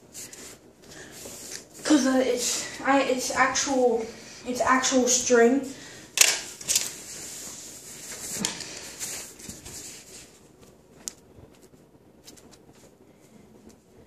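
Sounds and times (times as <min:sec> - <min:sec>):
rustling of handled objects: 0:06.2 - 0:13.6.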